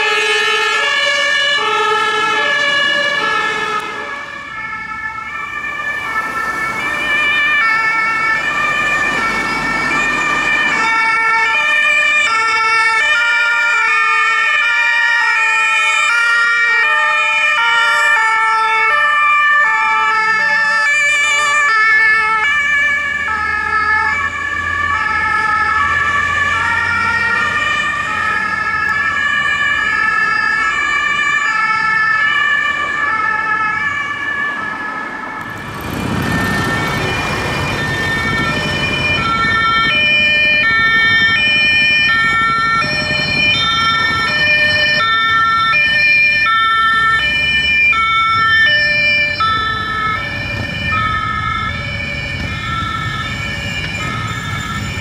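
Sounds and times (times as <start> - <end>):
two-tone emergency sirens: 0.0 - 55.0
vehicle passing close: 2.2 - 11.7, 33.7 - 55.0.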